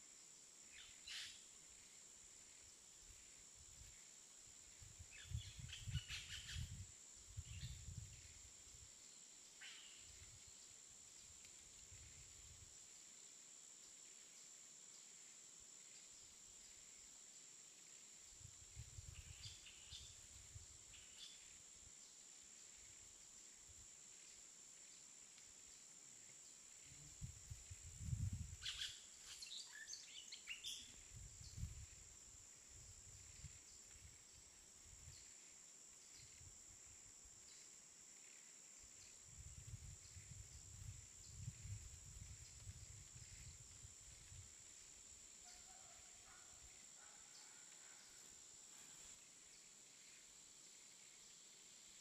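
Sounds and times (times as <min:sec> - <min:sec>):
wind rumbling on microphone: 0:04.7 - 0:08.5, 0:18.4 - 0:20.8, 0:27.1 - 0:28.9, 0:31.0 - 0:34.2, 0:39.2 - 0:44.7.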